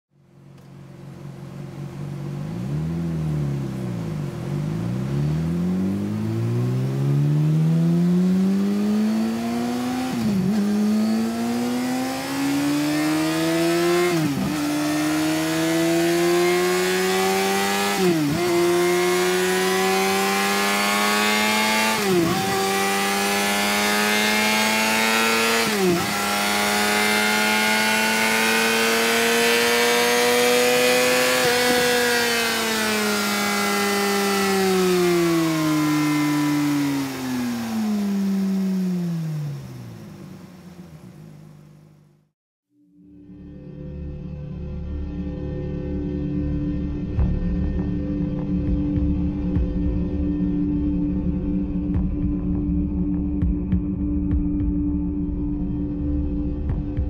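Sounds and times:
motorcycle engine revving with upshifts: 0:00.6 - 0:42.3.

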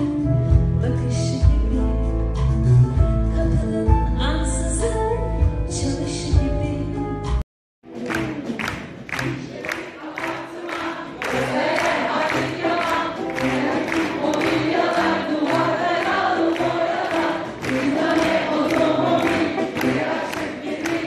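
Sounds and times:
group singing in unison: 0:09.2 - 0:21.0.

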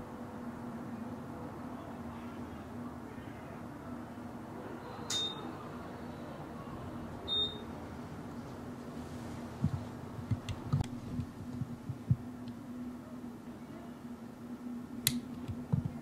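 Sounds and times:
faint low hum: 0:00.0 - 0:16.0
dull low thumps: 0:09.6 - 0:12.3.

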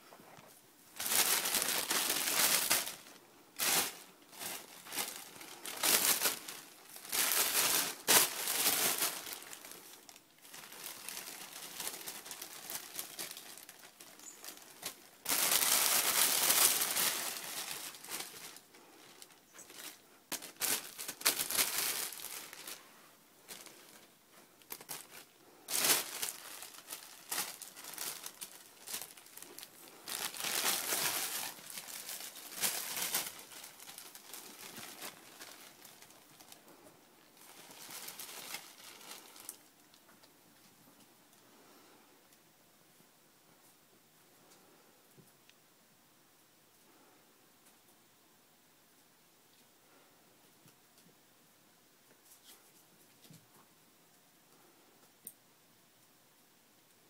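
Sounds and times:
plastic bags crinkling: 0:01.0 - 0:40.2.

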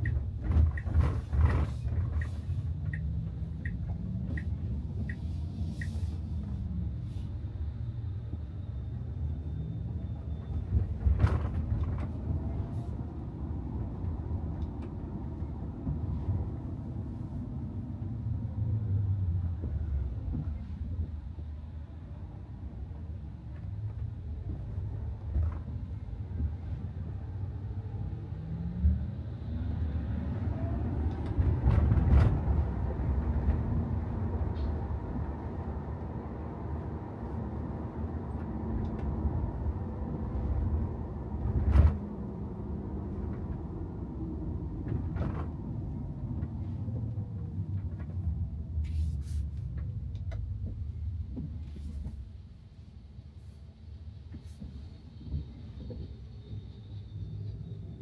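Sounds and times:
road and tyre rumble: 0:00.0 - 0:58.0.

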